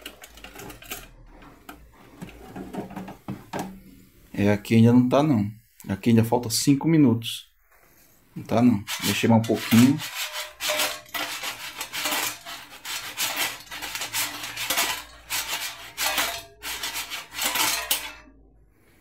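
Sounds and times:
fries rattling in air fryer basket: 0.0 - 1.3, 8.9 - 18.3.

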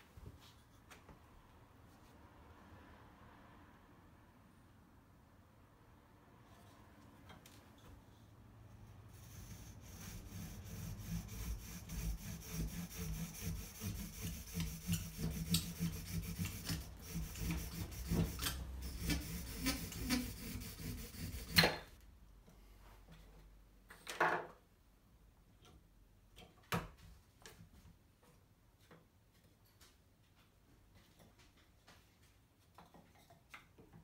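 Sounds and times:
hand saw cutting wood: 9.1 - 21.9.

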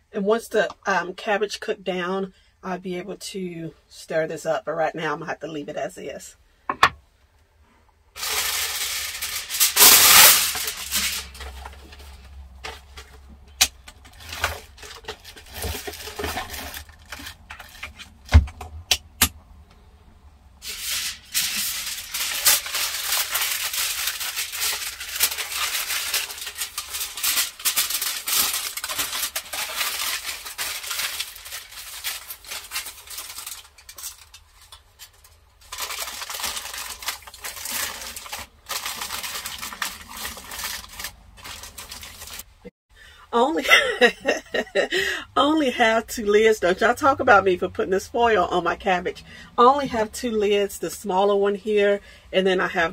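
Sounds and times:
cookware knocks: 6.7 - 7.0
aluminium foil crinkling and tearing: 8.2 - 18.3, 20.6 - 42.6.

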